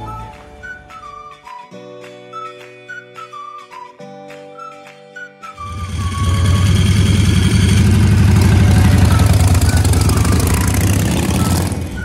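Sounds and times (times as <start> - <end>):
faint whistled music: 0.0 - 12.0
motorcycle engine running loud: 5.6 - 12.0.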